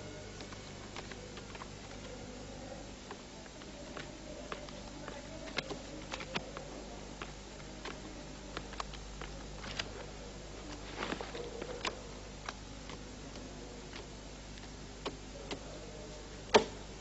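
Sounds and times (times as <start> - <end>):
steady low hum: 0.0 - 17.0
light clicks and taps: 3.0 - 10.0, 10.6 - 15.7.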